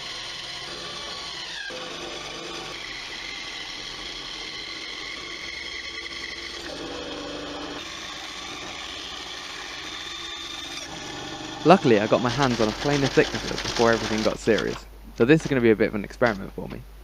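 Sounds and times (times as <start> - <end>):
bandsaw cutting wood: 0.0 - 14.8.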